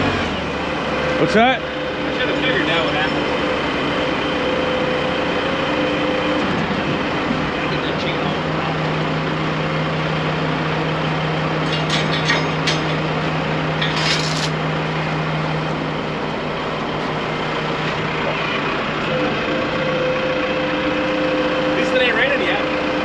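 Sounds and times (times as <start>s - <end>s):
heavy diesel engine idling: 0.0s - 23.0s
higher engine tone: 0.0s - 23.0s.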